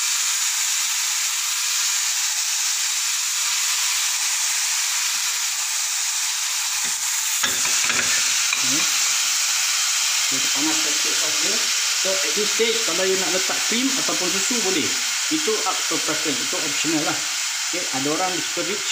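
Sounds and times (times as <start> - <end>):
meat sauce sizzling in a pan: 0.0 - 18.9
metal spoon scraping a pan: 6.8 - 9.2.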